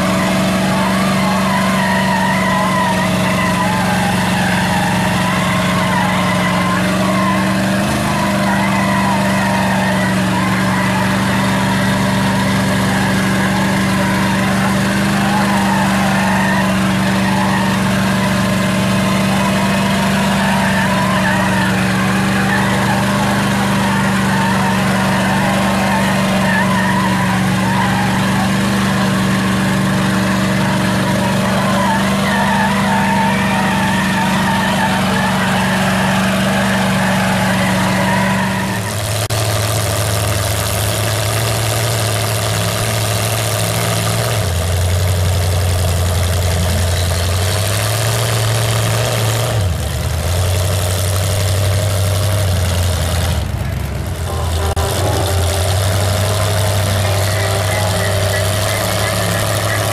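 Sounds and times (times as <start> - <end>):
truck engines running hard: 0.0 - 59.9.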